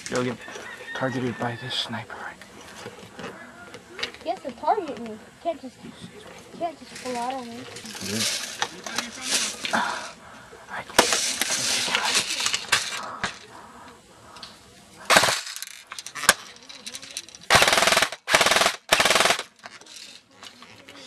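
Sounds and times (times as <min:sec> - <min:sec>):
airsoft rifle bursts: 0:15.1 - 0:16.4, 0:17.5 - 0:19.6.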